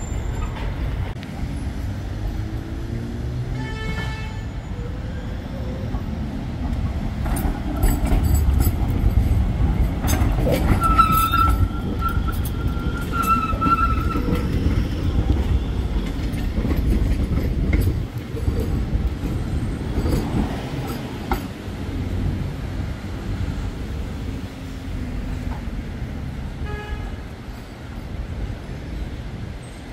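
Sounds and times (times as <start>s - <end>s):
tram wheels rumbling on rail: 0.0s - 29.9s
clicks over rail joints: 5.9s - 21.6s.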